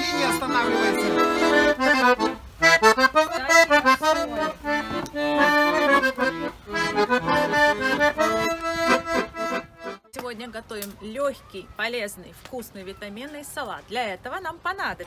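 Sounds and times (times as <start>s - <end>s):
piano accordion playing: 0.0s - 10.1s.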